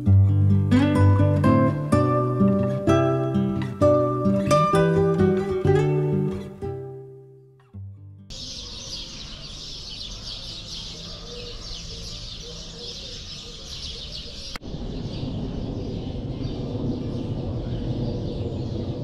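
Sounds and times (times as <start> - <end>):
small birds chirping: 8.3 - 19.0
low outdoor rumble: 14.5 - 19.0.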